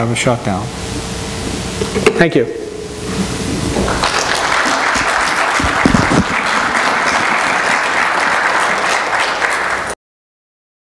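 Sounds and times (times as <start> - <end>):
low thumps: 2.6 - 6.7
audience applauding: 3.5 - 10.0.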